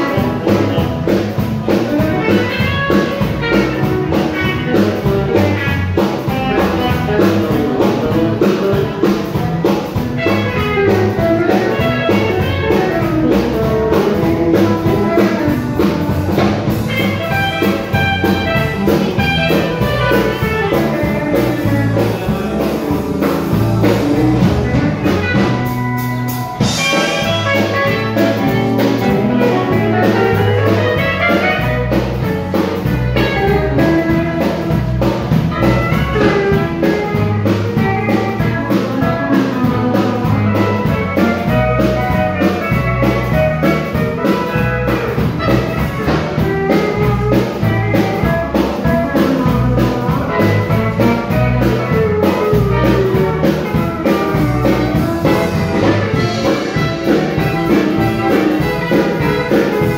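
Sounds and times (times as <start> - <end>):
country band playing fiddle tune: 0.0 - 59.9.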